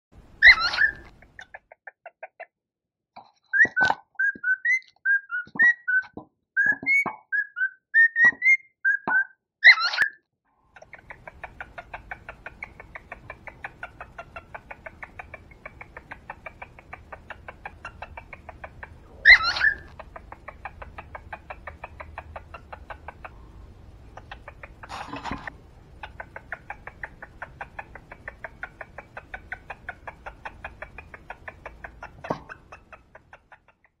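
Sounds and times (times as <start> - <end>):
cockatiel chattering: 0.3 - 2.0, 10.8 - 34.0
cockatiel whistled chirps: 0.4 - 1.1, 3.4 - 10.2, 19.2 - 19.9.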